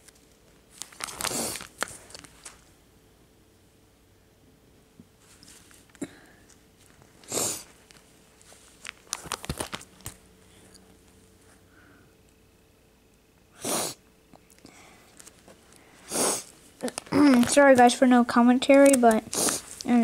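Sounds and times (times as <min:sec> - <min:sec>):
plastic card sleeves crackling: 0:00.0 - 0:02.6, 0:07.8 - 0:10.2, 0:16.8 - 0:18.0, 0:18.6 - 0:20.0
person sniffing: 0:07.3 - 0:07.7, 0:13.6 - 0:14.0, 0:15.9 - 0:16.5, 0:19.3 - 0:19.8.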